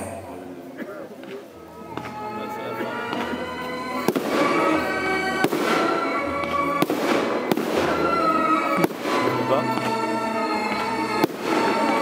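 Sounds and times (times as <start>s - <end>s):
music: 0.0s - 12.0s
firework crackling: 1.4s - 12.0s
firework shells bursting: 5.4s - 10.0s.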